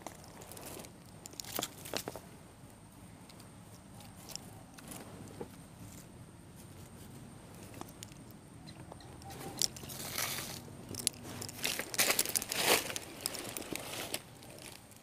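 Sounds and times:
twigs clicking: 0.0s - 2.2s, 6.8s - 15.0s
dry leaves crunching and rustling: 9.3s - 15.0s.

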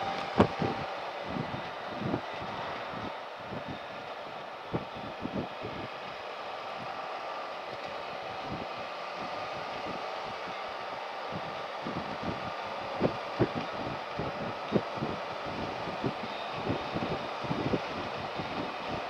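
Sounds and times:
wind noise: 0.0s - 6.1s, 8.2s - 10.6s, 11.3s - 19.0s.

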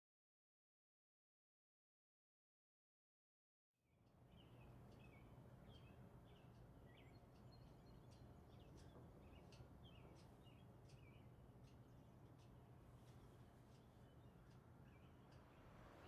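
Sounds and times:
low steady hum: 4.0s - 16.0s
small birds chirping: 4.1s - 16.0s.

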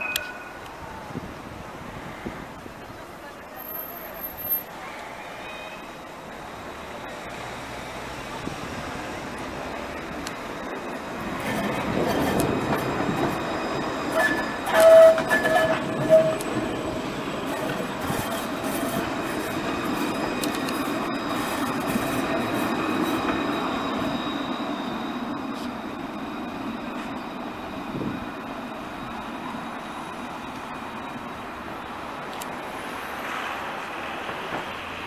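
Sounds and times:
tram warning signal: 0.0s - 0.9s, 3.5s - 35.0s
tram rumbling on rails: 0.0s - 35.0s
wheels squealing: 8.8s - 31.9s.

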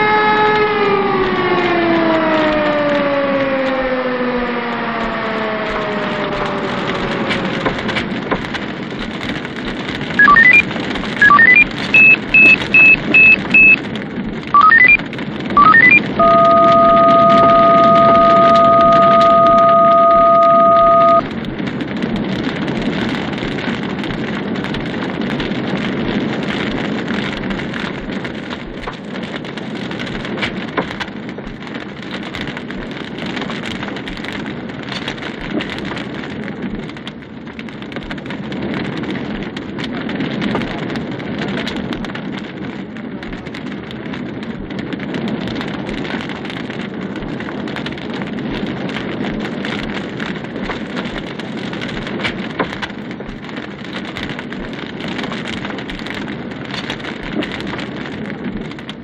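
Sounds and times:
siren winding down: 0.0s - 8.0s, 10.2s - 10.6s, 11.2s - 13.8s, 14.6s - 15.0s, 15.6s - 21.3s
loud electronic beeps and chirps: 10.2s - 10.6s, 11.2s - 13.8s, 14.6s - 15.0s, 15.6s - 21.3s
steady electronic tone: 15.6s - 21.3s.

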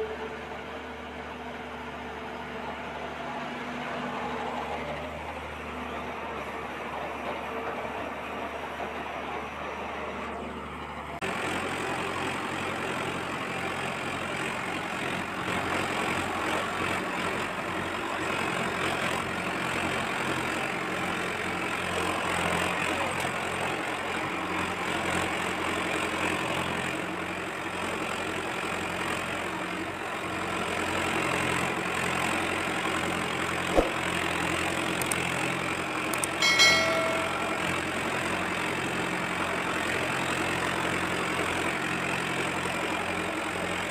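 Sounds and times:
chiming sound effect: 36.4s - 38.1s.

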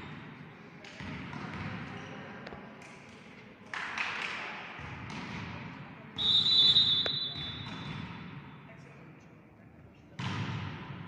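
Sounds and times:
referee's whistle: 6.2s - 7.7s.

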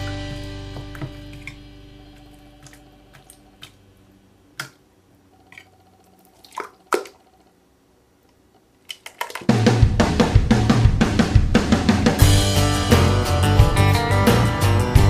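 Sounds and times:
background music with drums: 0.0s - 2.2s, 9.5s - 15.0s
sharp wet clicks: 0.9s - 3.8s, 5.4s - 7.3s
slime squelching and popping: 6.4s - 7.2s.

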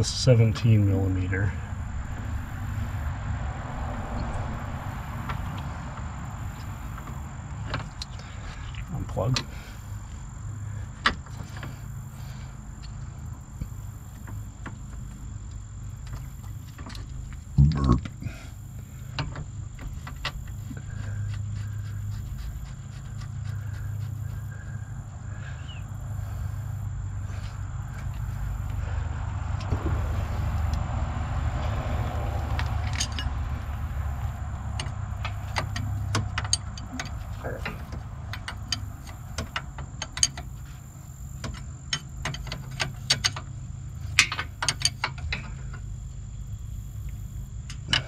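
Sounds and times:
steady low hum: 0.0s - 48.0s
steady low rumble: 0.0s - 48.0s
wrenches clinking: 32.7s - 45.9s.

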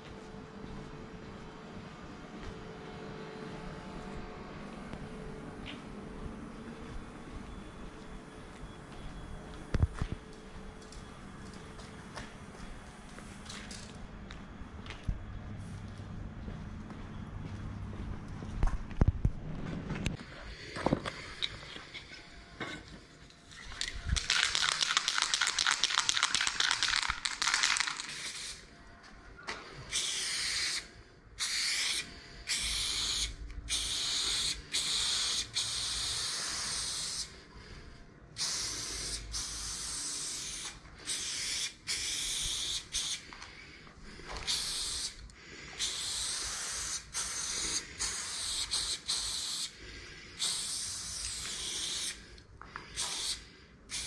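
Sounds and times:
spray paint can hissing: 24.1s - 28.7s, 29.9s - 37.3s, 38.4s - 43.2s, 44.5s - 45.2s, 45.8s - 49.8s, 50.4s - 52.2s, 52.9s - 54.0s.

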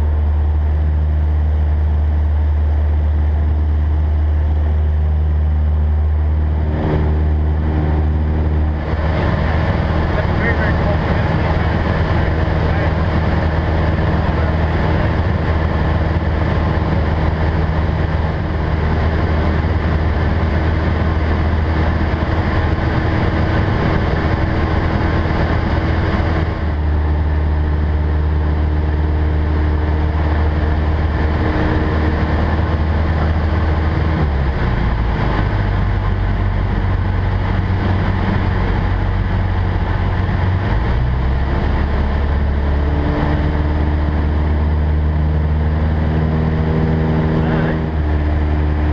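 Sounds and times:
airflow noise: 0.0s - 48.9s
light aircraft engine drone: 0.0s - 48.9s.

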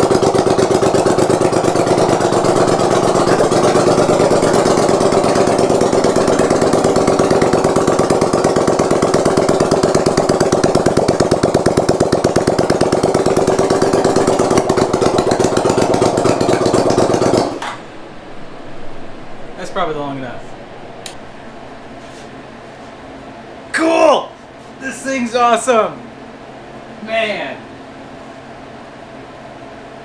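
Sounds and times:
motorcycle engine running: 0.0s - 22.4s.

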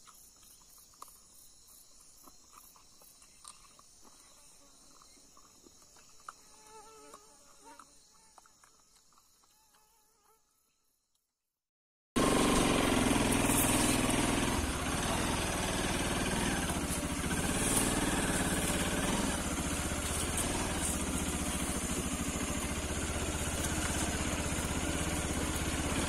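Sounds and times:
motorcycle engine running: 12.2s - 26.0s.

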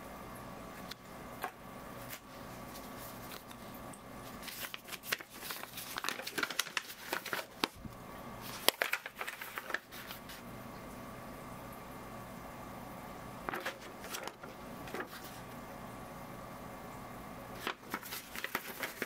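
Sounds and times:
faint steady hum: 0.0s - 19.0s
paper crackling and rustling: 2.0s - 10.5s, 13.5s - 15.6s, 17.5s - 19.0s.

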